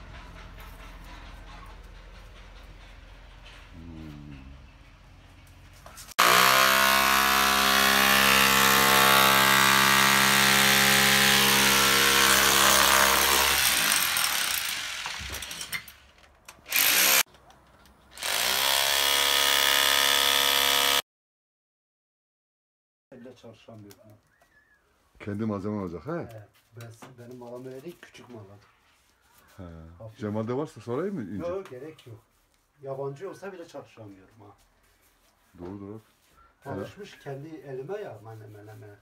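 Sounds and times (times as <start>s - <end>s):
power tool whining: 6.2s - 16.0s, 16.7s - 17.3s, 18.2s - 21.0s.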